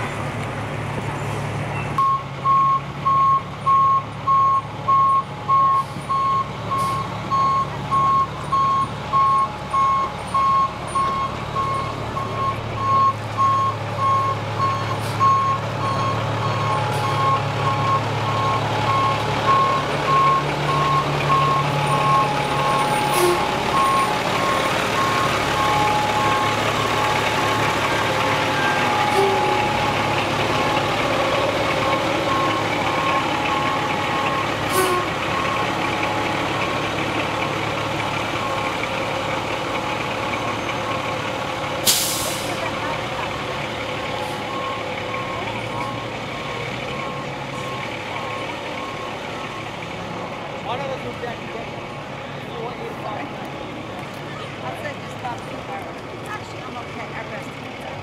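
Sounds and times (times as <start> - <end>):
diesel engine droning: 0.0 - 58.0
backup alarm beeping: 2.0 - 27.3.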